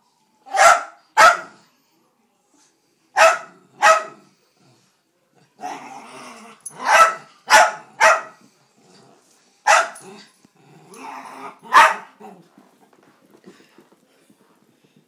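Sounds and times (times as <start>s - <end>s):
dog barking: 0.5s - 1.6s, 3.2s - 4.2s, 6.8s - 8.4s, 9.7s - 10.0s, 11.7s - 12.2s
dog growling: 5.6s - 6.8s, 10.0s - 12.5s.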